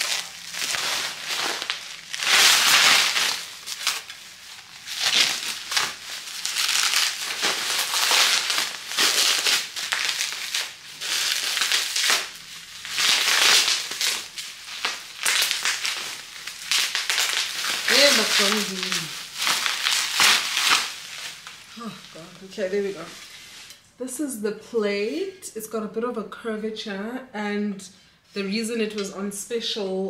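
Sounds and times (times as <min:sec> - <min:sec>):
plastic wrapping crinkling: 0:00.0 - 0:23.8.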